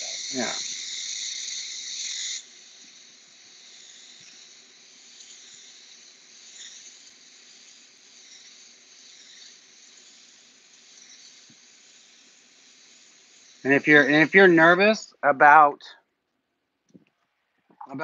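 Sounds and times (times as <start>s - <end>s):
airbrush spraying hiss: 0.0s - 15.9s.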